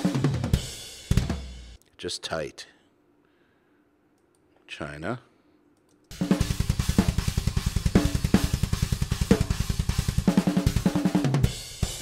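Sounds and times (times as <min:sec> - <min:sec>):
double-kick drum strokes: 0:00.0 - 0:01.5, 0:06.1 - 0:12.0.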